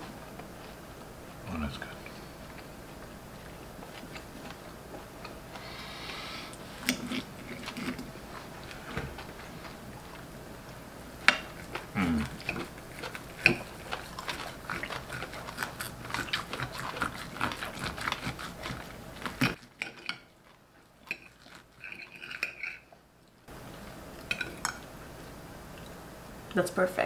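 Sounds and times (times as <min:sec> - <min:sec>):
eating sounds: 0:01.3 - 0:10.8, 0:11.4 - 0:23.5
cutlery scraping on plates: 0:21.1 - 0:22.8.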